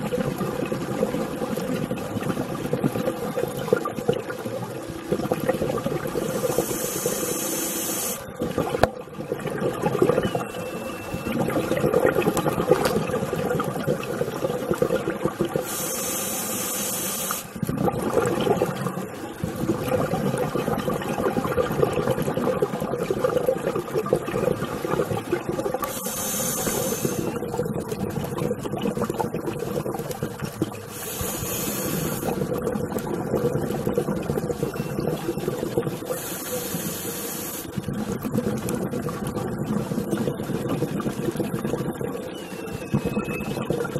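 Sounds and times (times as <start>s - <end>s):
exhaled air bubbling: 0.0s - 43.9s
regulator inhale hiss: 6.2s - 8.2s, 15.6s - 17.6s, 25.8s - 27.4s, 30.9s - 32.4s, 36.1s - 37.7s.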